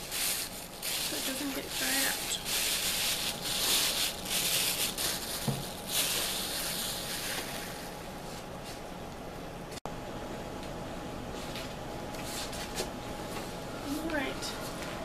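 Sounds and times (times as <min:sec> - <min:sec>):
paper rustling and crinkling: 0:00.0 - 0:08.4.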